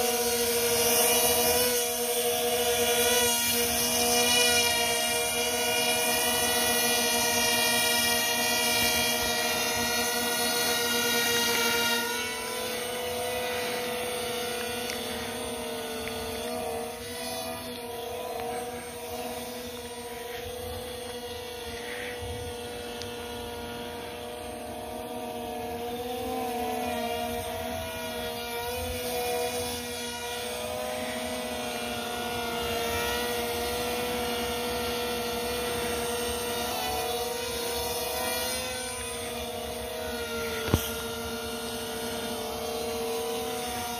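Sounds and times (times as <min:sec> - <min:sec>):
model airplane motors whining: 0:00.0 - 0:43.9.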